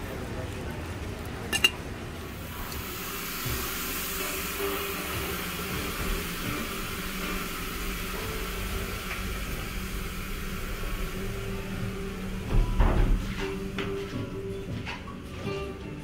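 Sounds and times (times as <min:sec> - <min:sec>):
faint background music: 0:10.6 - 0:16.0.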